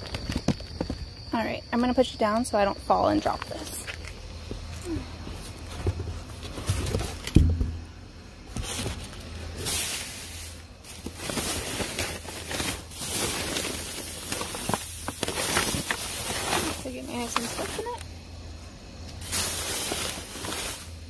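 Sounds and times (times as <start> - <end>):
thud: 7.3 - 7.8
plastic bags rustling: 8.5 - 18.0, 19.2 - 21.0.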